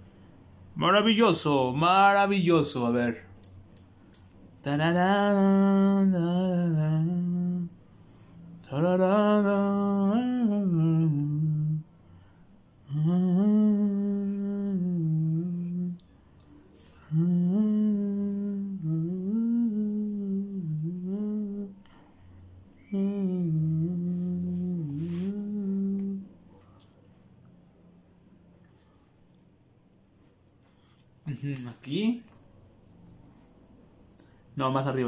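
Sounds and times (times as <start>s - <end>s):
person humming: 12.9s - 16.0s, 17.0s - 21.8s, 22.8s - 26.4s.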